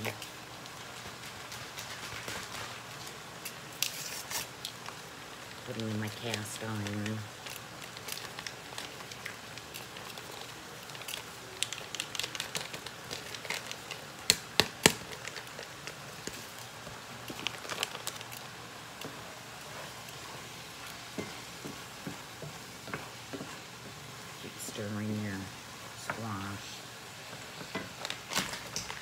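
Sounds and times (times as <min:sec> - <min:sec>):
fat sizzling in a frying pan: 0:00.0 - 0:29.0.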